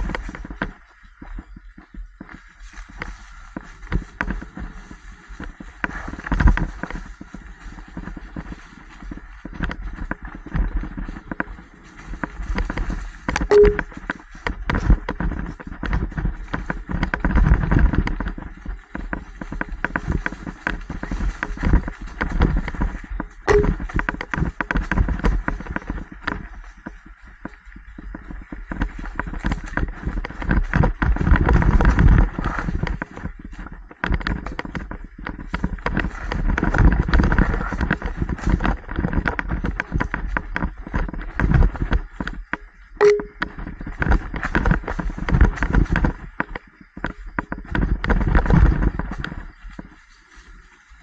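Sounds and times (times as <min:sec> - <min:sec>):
mountain bike rattling over trail: 0:00.0 - 0:51.0
tyre rumble: 0:03.0 - 0:50.5.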